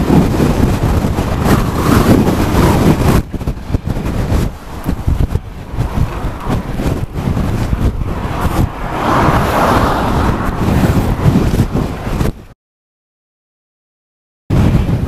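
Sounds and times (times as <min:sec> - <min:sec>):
gusty wind buffeting microphone: 0:00.0 - 0:12.6, 0:14.5 - 0:15.0
car passing: 0:01.1 - 0:12.3.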